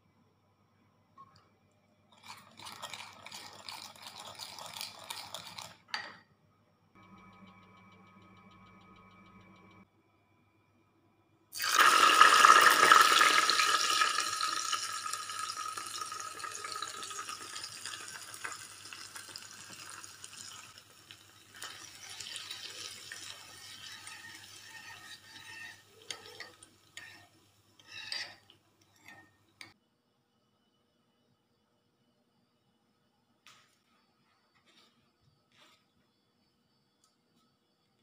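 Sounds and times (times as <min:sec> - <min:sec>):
spoon clinking and scraping in bowl: 0:02.2 - 0:06.2, 0:12.8 - 0:29.8
hot oil sizzling: 0:11.6 - 0:28.4.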